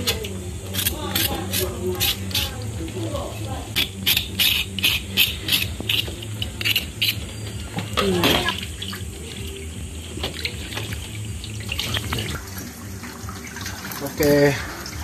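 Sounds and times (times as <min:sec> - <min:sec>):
knife scraping meat skin: 0:00.0 - 0:02.5, 0:03.8 - 0:07.2.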